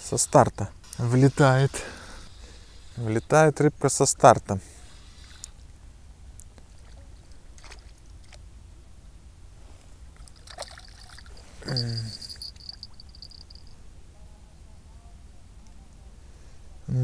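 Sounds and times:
thin high steady tone: 0.0 - 5.6, 10.7 - 15.0
faint water sounds: 0.0 - 16.8.

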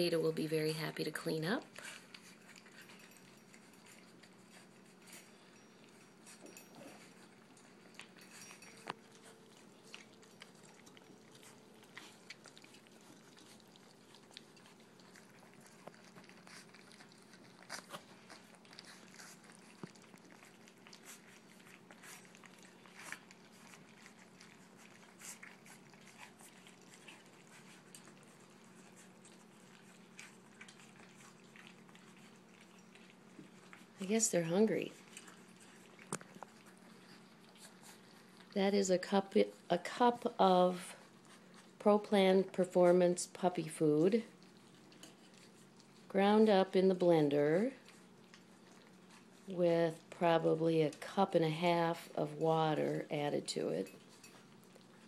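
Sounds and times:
low steady hum: 0.0 - 55.0
puppies lapping and chewing food: 0.0 - 55.0.

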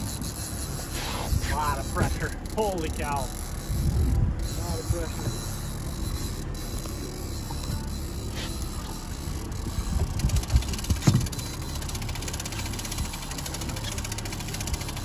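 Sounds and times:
outboard motor running: 0.0 - 15.0
dull low thumps: 3.6 - 5.4.

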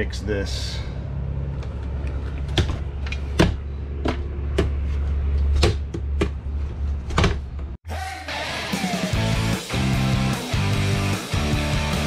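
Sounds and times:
rock guitar music: 8.2 - 12.0.

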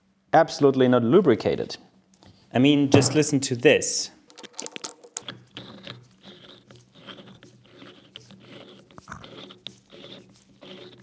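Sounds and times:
lathe chuck screw scraping: 5.2 - 11.0.

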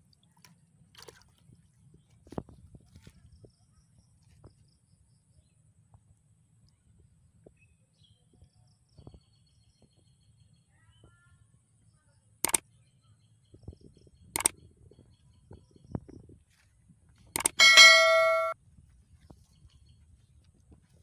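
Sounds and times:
sharp clicks: 12.4 - 12.6, 14.4 - 14.6, 17.4 - 18.6.

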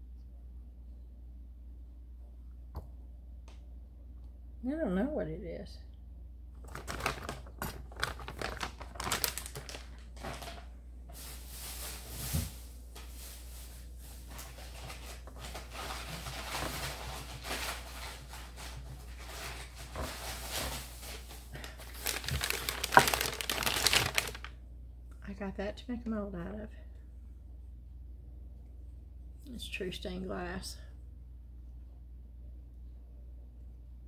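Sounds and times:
packaging rustling and crinkling: 6.6 - 24.5.

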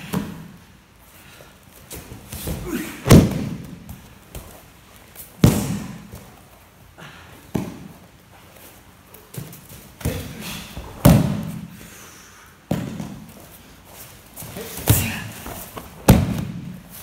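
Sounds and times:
bodies thudding onto mats: 1.9 - 4.6, 14.4 - 16.8.

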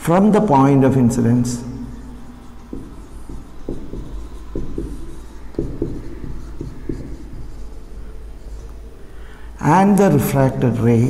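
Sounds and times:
marker writing on whiteboard: 1.6 - 9.4.

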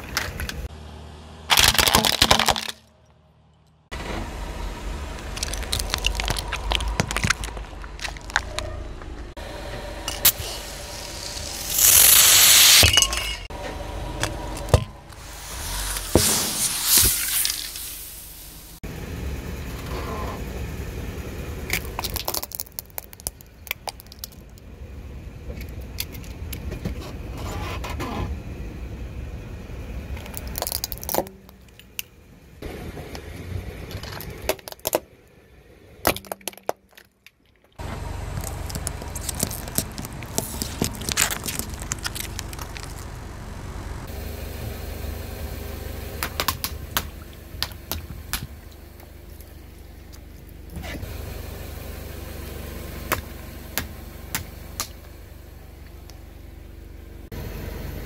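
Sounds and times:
engine and tyre rumble: 0.0 - 58.0
tyre crushing small objects: 1.5 - 3.0, 5.2 - 9.2, 14.2 - 18.0, 21.7 - 24.7, 30.1 - 32.1, 33.8 - 35.2, 36.0 - 43.3.

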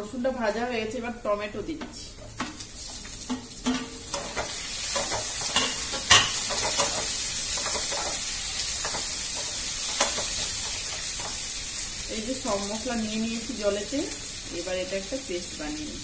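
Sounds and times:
food sizzling in hot oil: 1.0 - 16.0
stirring in a pan: 2.1 - 12.2.

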